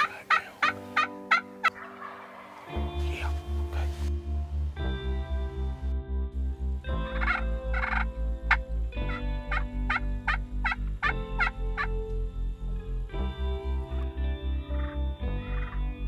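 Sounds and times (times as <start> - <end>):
turkeys gobbling: 0.0 - 2.8, 7.2 - 10.8, 11.4 - 11.9.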